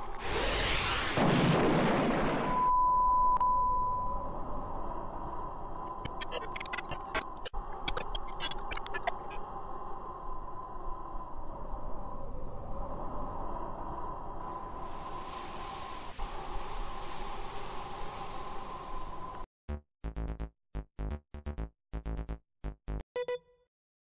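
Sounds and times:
cartoon explosion: 0.2s - 2.6s
faint steady hiss: 14.4s - 19.4s
high beep-like tone: 23.2s - 23.6s.

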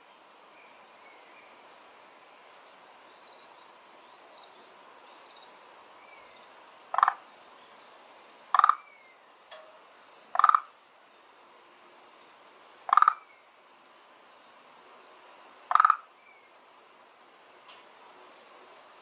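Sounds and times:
frog croaking: 6.9s - 7.3s, 8.5s - 9.0s, 10.3s - 10.8s, 12.9s - 13.4s, 15.7s - 16.1s.

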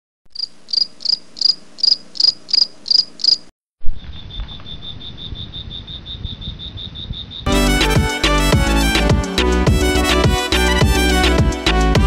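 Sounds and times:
cricket trill: 0.3s - 7.5s
crickets chirping: 0.3s - 7.5s.

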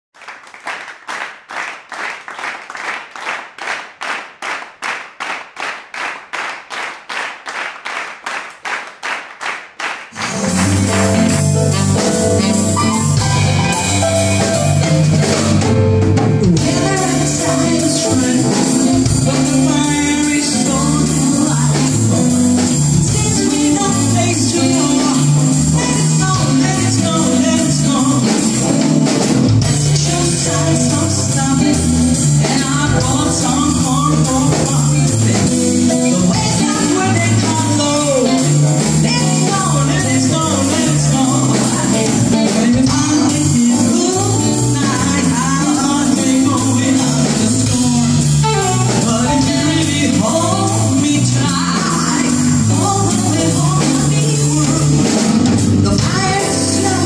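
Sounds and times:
steady percussive beat: 10.0s - 15.6s
pop band playing: 10.0s - 57.0s.

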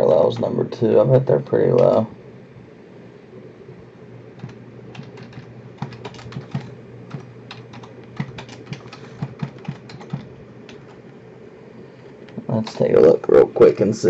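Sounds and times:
keyboard typing: 4.4s - 11.0s.

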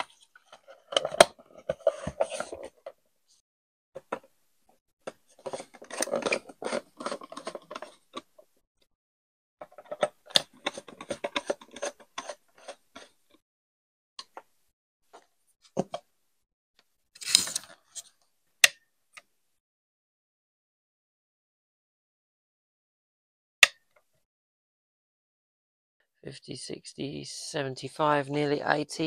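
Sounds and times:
screwdriver clicking and scraping: 5.3s - 8.3s, 9.6s - 13.2s, 17.2s - 18.1s.

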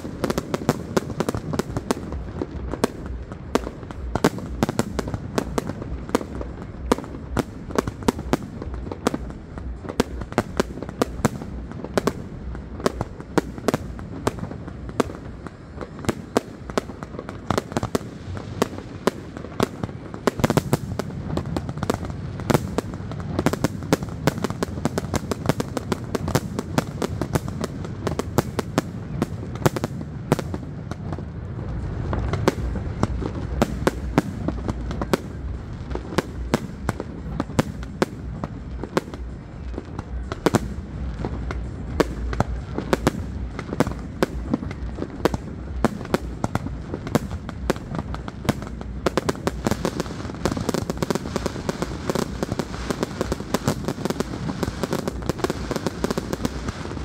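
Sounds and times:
fireworks bangs: 0.0s - 57.0s
low rumble: 29.0s - 51.0s.

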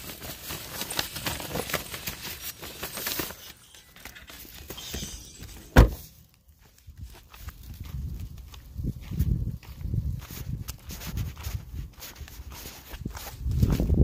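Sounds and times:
loud thump: 5.6s - 6.1s.

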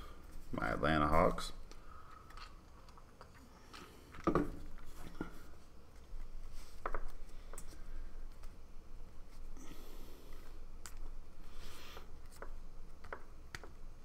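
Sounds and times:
trading cards rustling and tapping: 1.6s - 8.6s, 11.8s - 13.9s.

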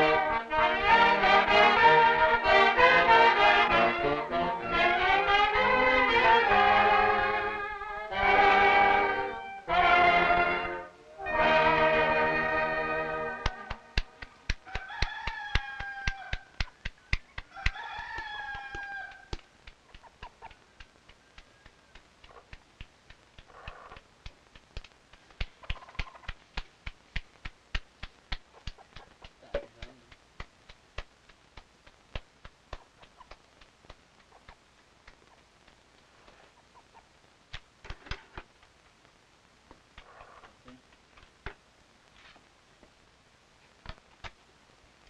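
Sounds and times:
hands slapping tortilla dough: 13.4s - 36.4s, 37.5s - 38.6s
rooster crowing: 14.6s - 16.6s, 17.4s - 19.4s, 20.4s - 22.4s.

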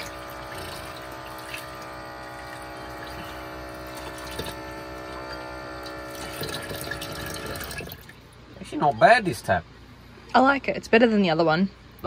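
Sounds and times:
tap water running into sink: 0.0s - 8.2s
electric water pump whining: 0.0s - 8.4s.

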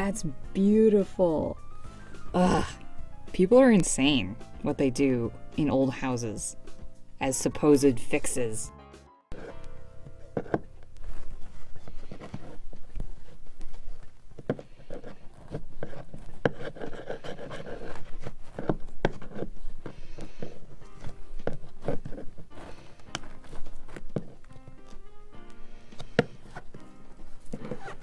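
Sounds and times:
chisel scraping: 9.3s - 13.4s, 14.4s - 25.0s.

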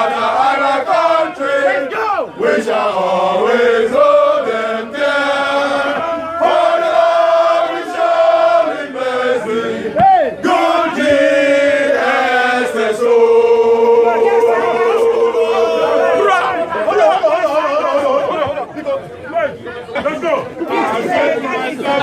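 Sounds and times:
men singing in unison: 0.0s - 16.6s.

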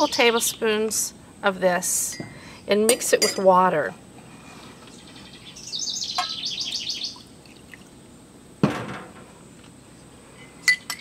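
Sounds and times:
songbird chirping: 0.0s - 1.0s, 4.6s - 7.9s.

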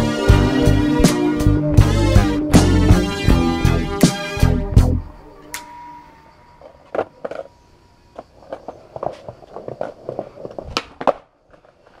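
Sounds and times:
footsteps: 6.6s - 12.0s
skateboard clicks and knocks: 6.6s - 12.0s.

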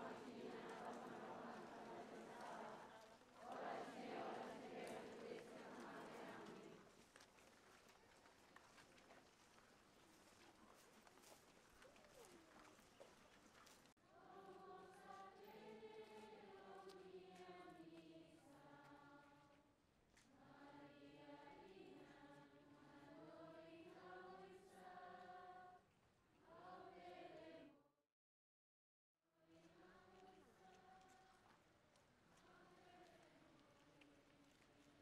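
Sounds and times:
crowd singing a hymn: 0.0s - 6.9s, 14.1s - 19.4s, 20.3s - 25.8s, 26.4s - 27.7s.

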